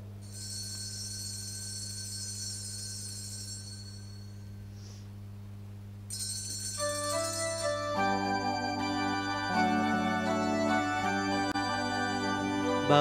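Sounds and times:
steady low hum: 0:00.0 - 0:13.0
sanctuary bell ringing: 0:00.2 - 0:04.6, 0:06.1 - 0:09.8.

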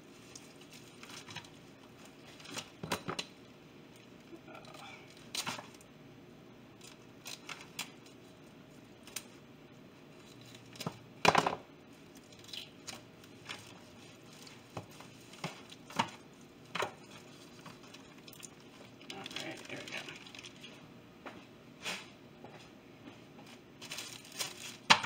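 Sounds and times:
foil pan rustling: 0:00.0 - 0:03.0, 0:12.0 - 0:20.8, 0:23.4 - 0:25.0
plastic bag crinkling: 0:00.0 - 0:03.3, 0:12.0 - 0:20.8, 0:23.4 - 0:25.0.

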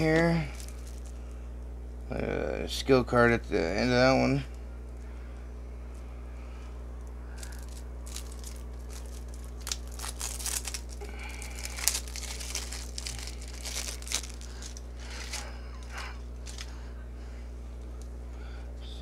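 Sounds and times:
packaging crinkling and tearing: 0:00.0 - 0:01.2, 0:07.3 - 0:16.8.

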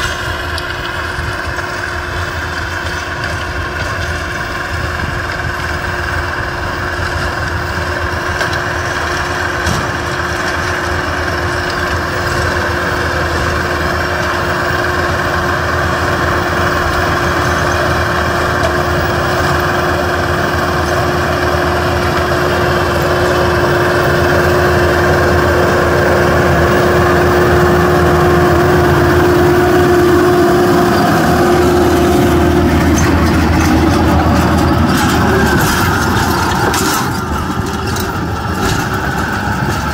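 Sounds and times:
rotary tiller churning soil: 0:00.0 - 0:39.9
tractor diesel engine running: 0:00.0 - 0:39.9.

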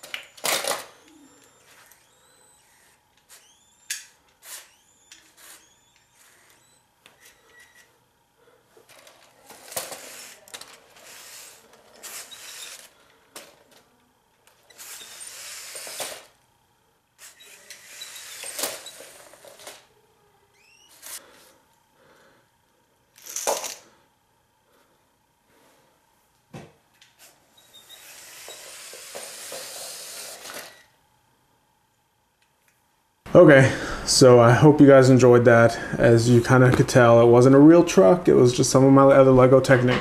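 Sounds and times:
plastic toy pieces clattering: 0:00.0 - 0:01.1, 0:08.9 - 0:13.8, 0:18.4 - 0:19.8, 0:23.2 - 0:23.8.

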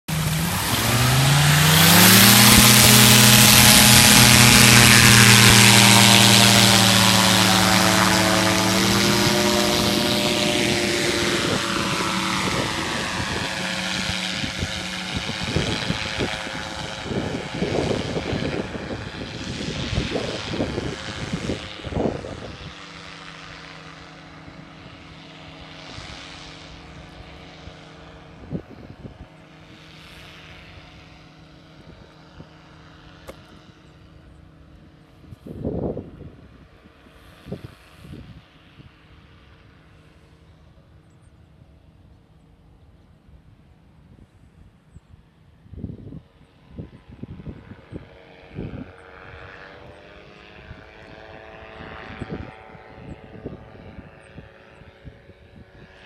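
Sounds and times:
engine and propeller drone: 0:00.0 - 0:56.0
sweeping whoosh: 0:00.1 - 0:16.1.

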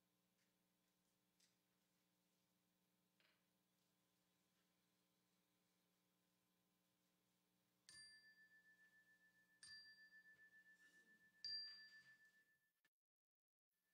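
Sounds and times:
small bell-like chime: 0:07.8 - 0:12.9.

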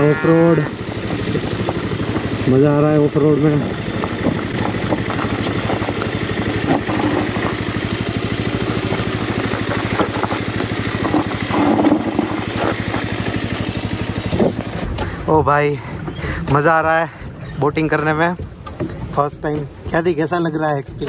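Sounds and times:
motorcycle engine at low revs: 0:00.0 - 0:21.0
loose stones clattering: 0:04.0 - 0:13.4.

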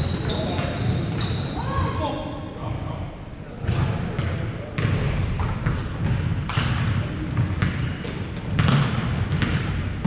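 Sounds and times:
sneaker squeaks: 0:00.0 - 0:01.9, 0:07.6 - 0:09.8
basketball bouncing on hardwood: 0:08.5 - 0:09.7.

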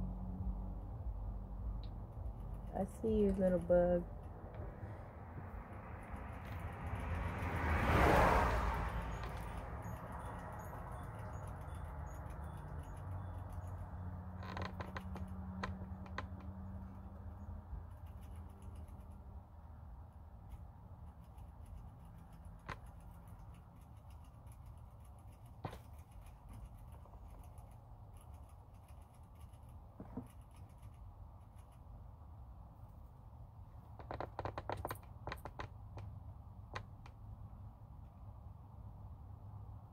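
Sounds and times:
low steady hum: 0:00.0 - 0:06.9.

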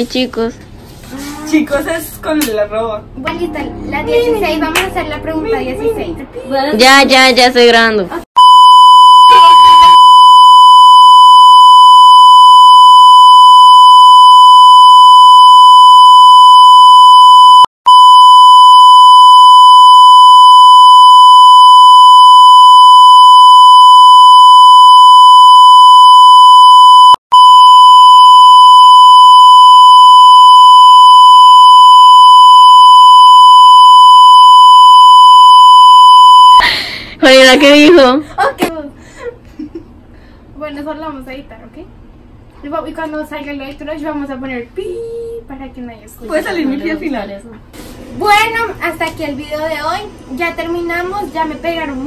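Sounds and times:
censor bleep tone: 0:08.4 - 0:36.6.

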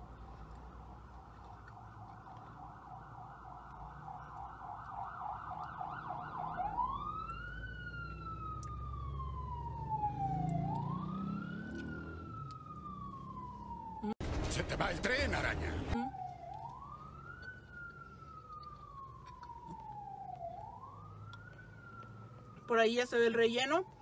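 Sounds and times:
emergency vehicle siren: 0:00.0 - 0:14.2, 0:14.9 - 0:24.0
low vehicle rumble: 0:00.0 - 0:22.8.

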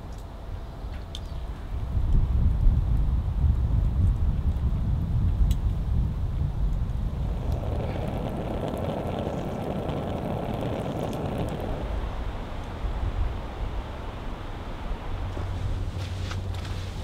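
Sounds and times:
low fire rumble: 0:00.0 - 0:17.0
wood fire crackling: 0:06.4 - 0:13.5.

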